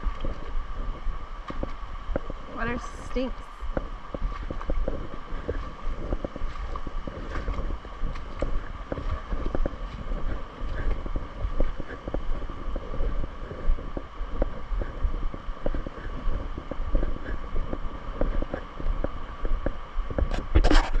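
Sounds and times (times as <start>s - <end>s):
flowing river water: 0.0s - 21.0s
wind buffeting the microphone: 0.0s - 21.0s.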